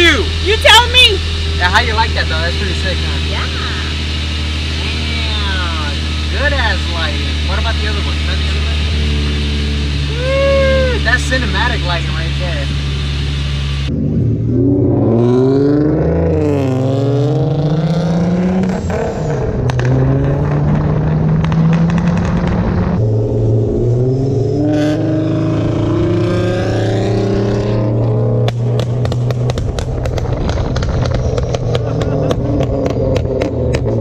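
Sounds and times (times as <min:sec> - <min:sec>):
car engine accelerating: 0:00.0 - 0:34.0.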